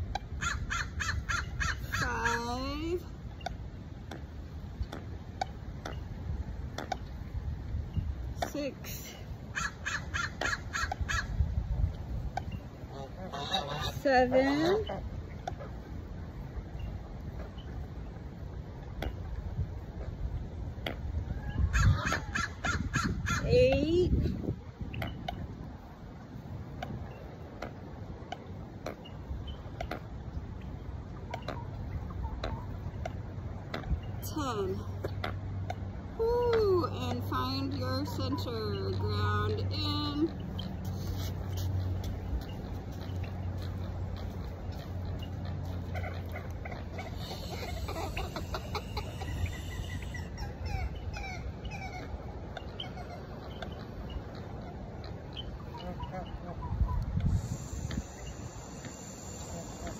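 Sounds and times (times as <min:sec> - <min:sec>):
wind rumble on microphone: 0:00.0 - 0:59.9
wind on microphone: 0:04.7 - 0:15.7, 0:18.6 - 0:28.2, 0:56.2 - 0:59.9.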